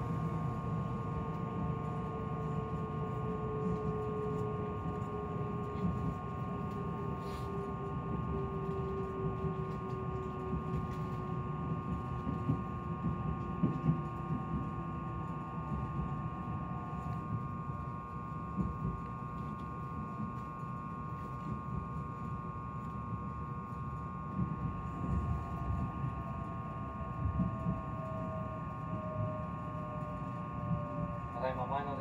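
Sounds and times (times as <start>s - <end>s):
train wheels rumbling on track: 0.0s - 22.0s, 22.8s - 32.0s
electric drive whine: 0.0s - 32.0s.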